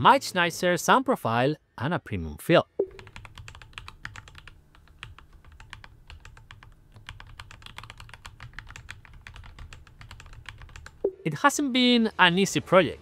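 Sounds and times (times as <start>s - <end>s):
mechanical keyboard keystroke clacks: 3.0s - 11.0s.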